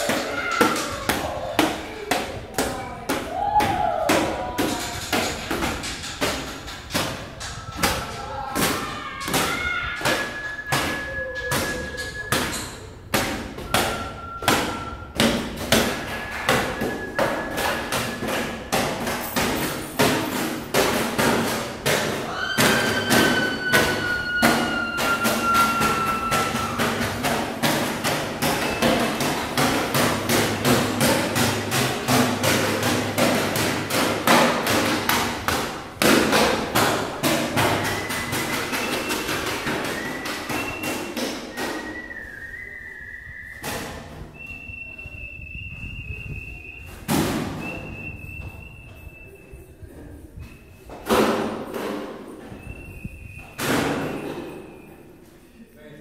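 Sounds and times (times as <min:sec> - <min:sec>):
rapid percussive knocks and thuds: 0:00.0 - 0:42.0
held high tones: 0:13.6 - 0:18.7, 0:22.2 - 0:31.0.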